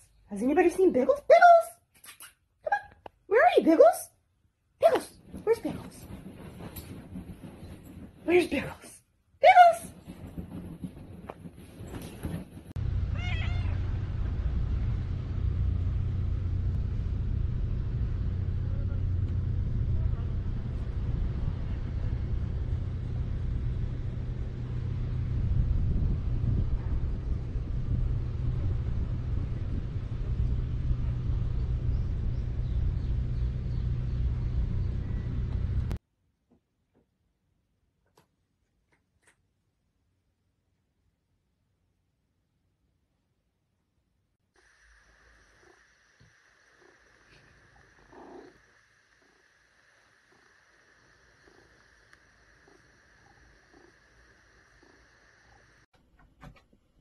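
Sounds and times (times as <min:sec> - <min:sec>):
steady low rumble: 0:10.2 - 0:36.0
cat meowing: 0:13.1 - 0:13.8.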